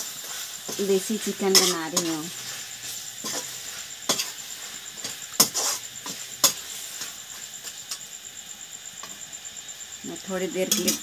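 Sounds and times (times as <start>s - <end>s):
metal spatula scraping a pan: 0.0s - 8.1s
faint steady hiss: 0.0s - 11.0s.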